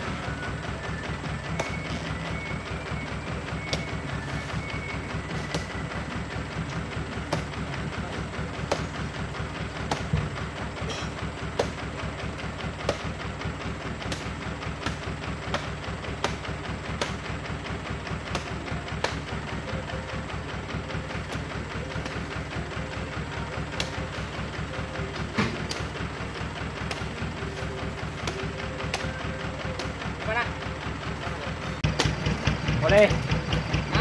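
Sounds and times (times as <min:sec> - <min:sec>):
engine idling: 0:00.0 - 0:34.0
sharp knocks of fruit bunches: 0:01.4 - 0:02.0, 0:03.6 - 0:13.4, 0:14.0 - 0:17.4, 0:18.2 - 0:19.4, 0:21.1 - 0:22.5, 0:23.7 - 0:24.4, 0:25.1 - 0:26.0, 0:26.6 - 0:27.3, 0:27.9 - 0:30.3, 0:31.8 - 0:33.2.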